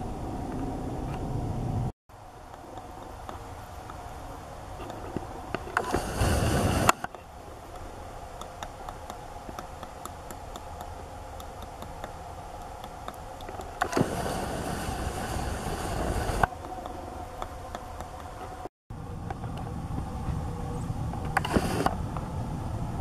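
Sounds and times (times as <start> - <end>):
woodpecker knocking on wood: 6.8 - 14.0.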